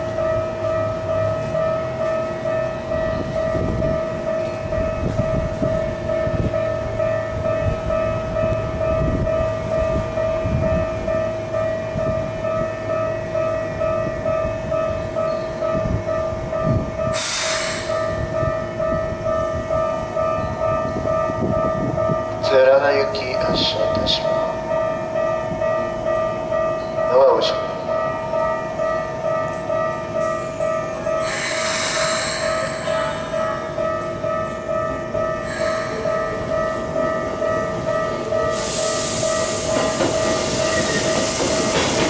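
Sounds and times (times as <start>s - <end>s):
ringing warning tone: 0.0s - 41.8s
electric trains passing: 0.0s - 42.0s
short hissing blast: 17.2s - 18.0s.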